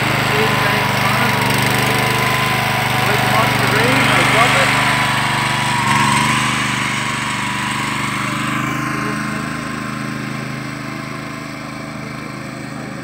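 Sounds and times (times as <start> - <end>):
reel mower engine running: 0.0 - 13.0.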